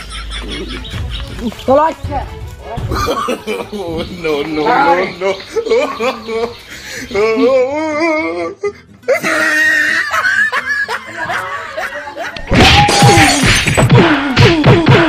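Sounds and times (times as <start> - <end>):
person vocalizing loudly: 7.1 - 10.1.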